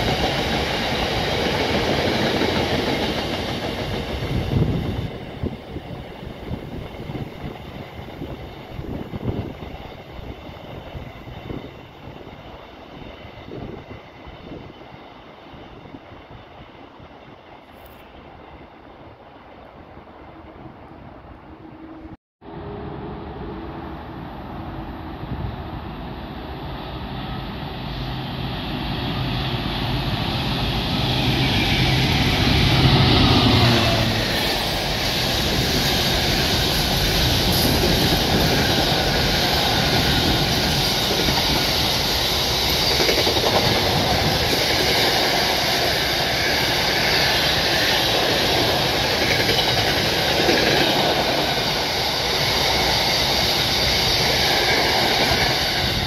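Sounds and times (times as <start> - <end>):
diesel locomotive engine drone: 20.2 - 56.0
steel wheels on rails: 29.2 - 56.0.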